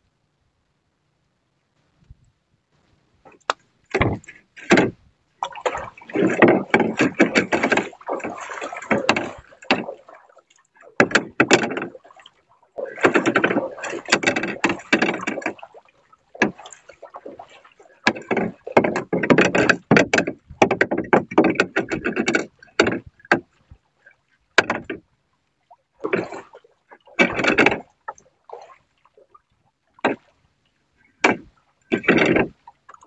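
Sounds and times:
water slapping against boat hull: 3.2s - 33.0s
sharp knocks of wood: 3.3s - 5.0s, 11.0s - 12.0s, 18.0s - 23.4s, 31.2s - 32.6s.

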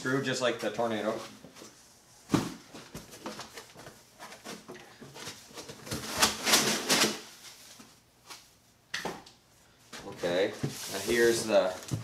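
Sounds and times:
cardboard and foam rustling: 10.0s - 12.0s.

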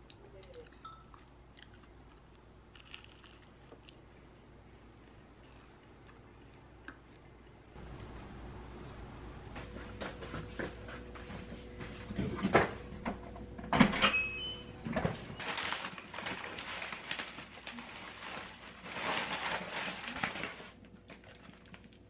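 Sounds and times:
paper bags rustling: 15.4s - 22.0s.

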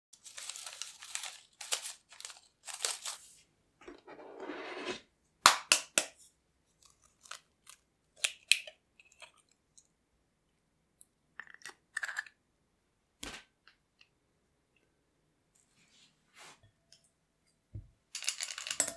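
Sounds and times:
baking paper crinkling: 0.2s - 3.4s
shell clinking on glass bowls: 18.2s - 18.9s.

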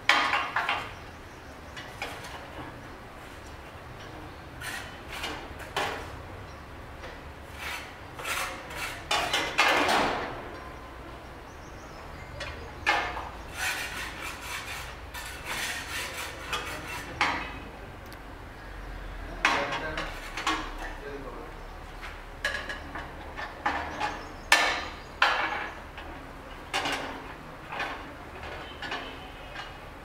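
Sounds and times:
steel bars clinking and scraping: 7.6s - 10.0s, 12.4s - 17.6s.

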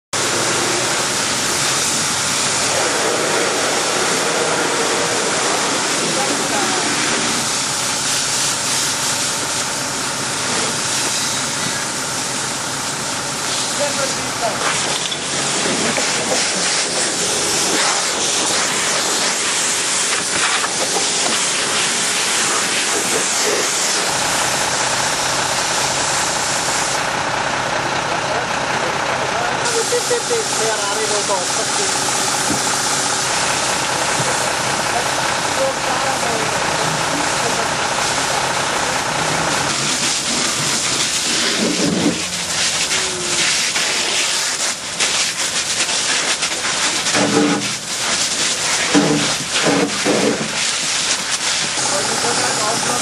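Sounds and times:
water jetting from fire hose: 0.2s - 27.4s, 28.0s - 53.0s
water splashing on metal: 39.5s - 53.0s.

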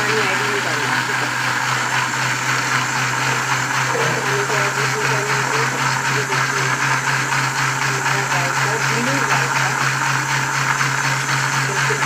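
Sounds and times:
blender motor whirring: 0.0s - 12.0s.

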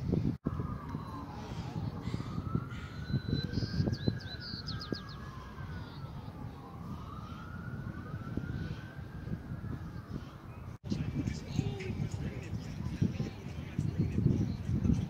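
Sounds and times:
emergency siren wailing: 0.4s - 10.9s
bird chirps: 2.9s - 5.3s.

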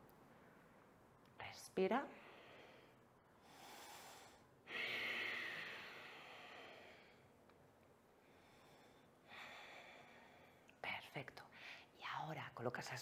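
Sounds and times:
woman breathing deeply: 2.2s - 7.4s, 8.2s - 10.7s.

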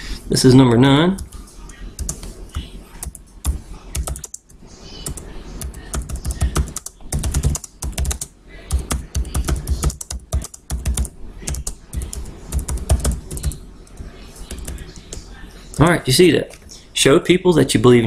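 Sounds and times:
typing on computer keyboard: 1.2s - 15.2s.

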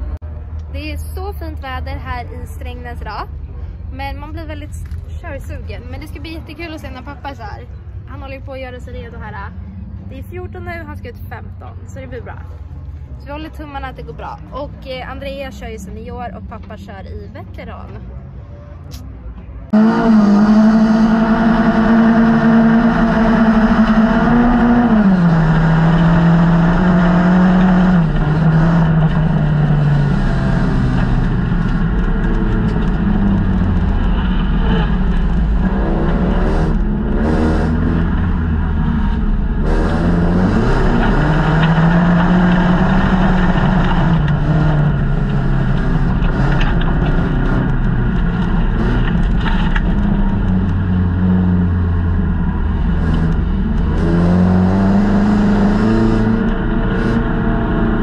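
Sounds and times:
race car engine revving: 17.9s - 58.0s.

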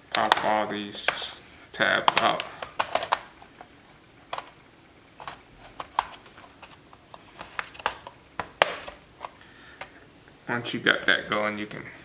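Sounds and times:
plastic tabs popping loose: 2.0s - 3.3s, 7.1s - 10.0s.

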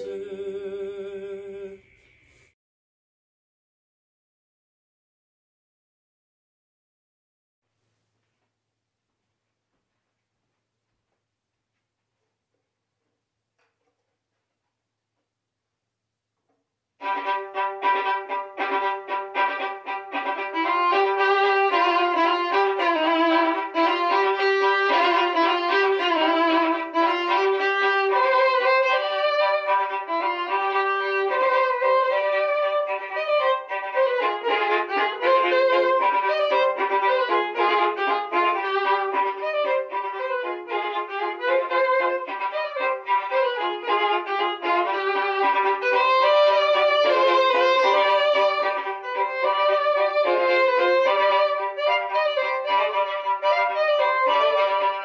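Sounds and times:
two violins playing: 0.0s - 1.7s, 17.0s - 55.0s.

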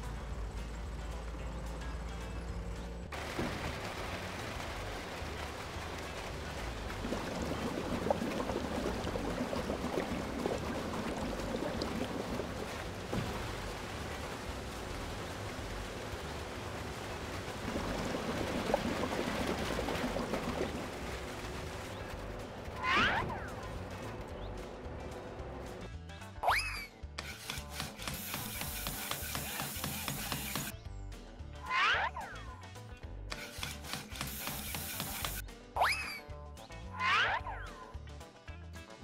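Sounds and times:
low steady hum: 0.0s - 25.9s
wet concrete pouring: 3.1s - 24.6s, 27.2s - 30.7s, 33.4s - 35.4s.

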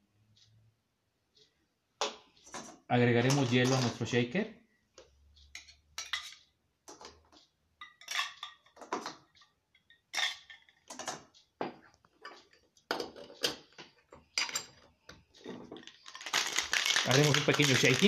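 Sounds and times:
ice cubes clinking into metal shaker: 15.8s - 18.0s.

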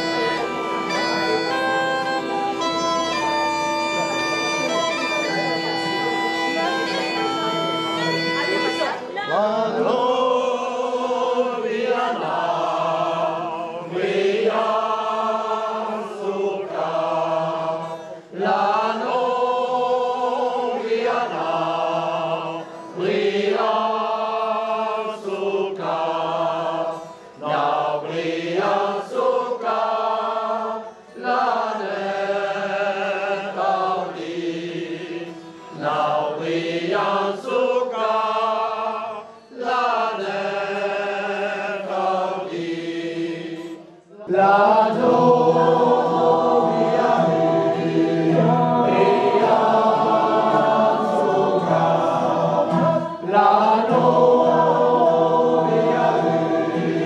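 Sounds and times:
mixed choir singing folk song: 0.0s - 57.0s.

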